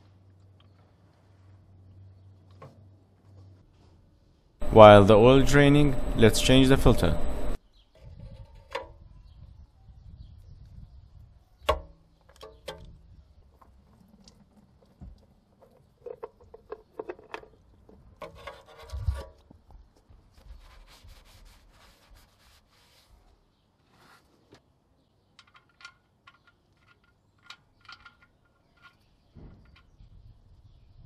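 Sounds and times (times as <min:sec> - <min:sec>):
handling clicks and knocks: 0:13.6 - 0:18.6, 0:25.2 - 0:30.0
oil filter scraping against mount: 0:13.6 - 0:19.4.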